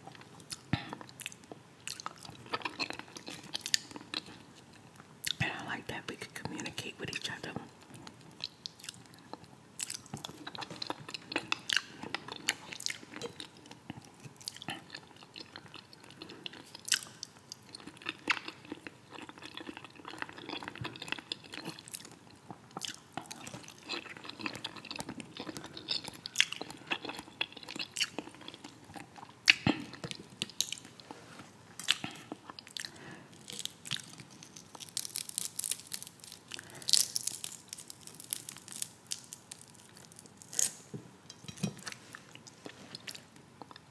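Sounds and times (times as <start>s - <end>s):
chewing with wet mouth sounds: 0.1s - 5.4s, 7.8s - 40.6s
fried fish crackling apart: 33.5s - 40.8s.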